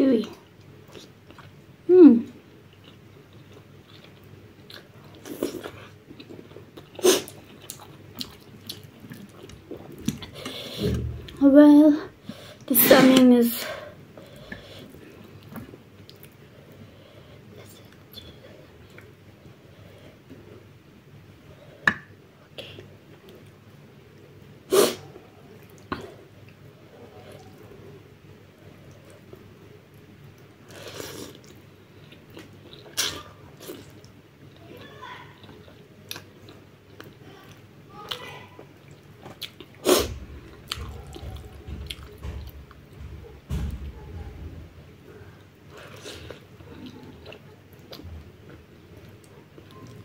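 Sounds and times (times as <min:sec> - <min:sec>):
mouth chewing with wet smacks: 0:02.7 - 0:11.4, 0:35.4 - 0:43.2, 0:45.4 - 0:50.0
loud nose sniff: 0:24.7 - 0:25.0.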